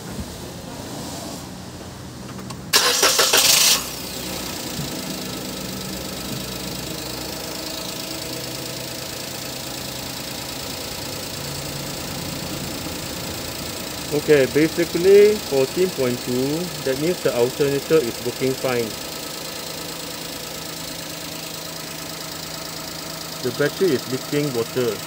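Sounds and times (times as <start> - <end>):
car engine idling: 1.7 - 25.0
engine starter cranking: 2.3 - 6.8, 14.1 - 19.0.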